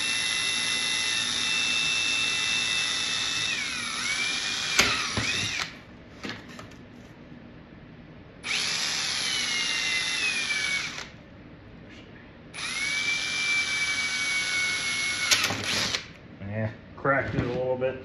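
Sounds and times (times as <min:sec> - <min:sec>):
cordless drill whining: 0:00.0 - 0:05.8, 0:08.4 - 0:11.2, 0:12.6 - 0:16.2.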